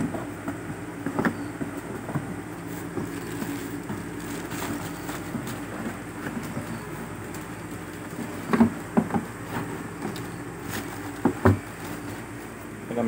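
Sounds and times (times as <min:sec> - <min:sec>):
steady low hum: 0:00.0 - 0:13.0
parts knocking in cardboard box: 0:08.2 - 0:12.2.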